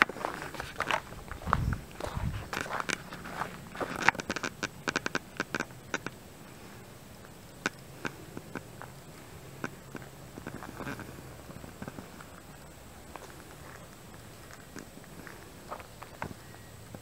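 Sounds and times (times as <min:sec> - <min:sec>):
footsteps crunching on dry leaves: 0:00.0 - 0:04.3.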